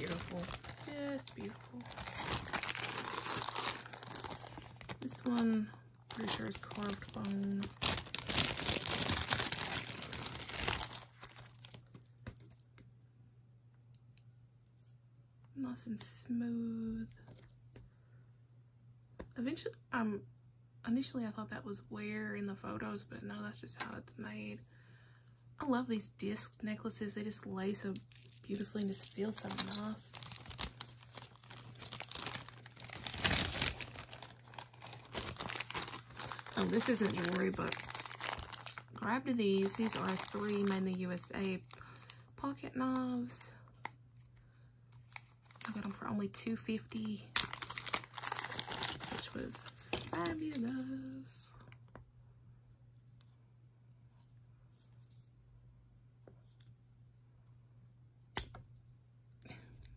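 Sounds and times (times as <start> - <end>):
plastic bag crinkling: 0.0 - 12.6, 28.0 - 42.2, 45.0 - 46.0, 46.9 - 50.7.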